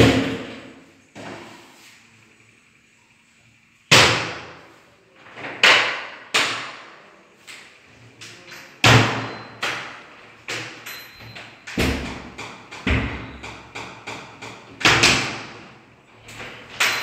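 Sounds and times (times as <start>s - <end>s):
wardrobe doors knocking shut: 11.8s - 13.7s.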